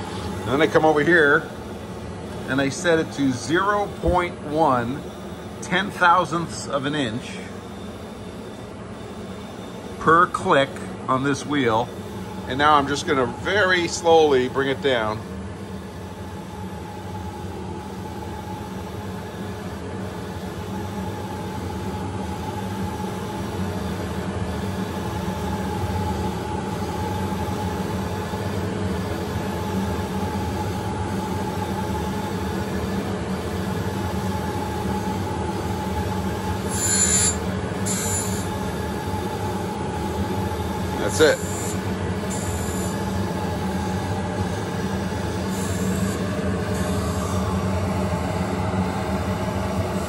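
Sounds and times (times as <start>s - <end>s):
grinding wheel whine: 36.6s - 39.1s.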